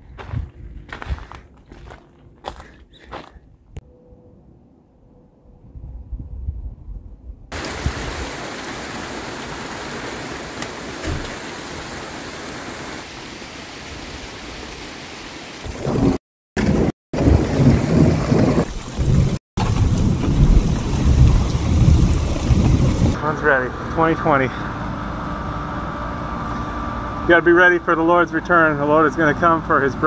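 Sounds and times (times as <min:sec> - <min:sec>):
thunder rumbling: 0:05.7 - 0:12.0, 0:15.6 - 0:23.3
steady rain: 0:07.5 - 0:23.3.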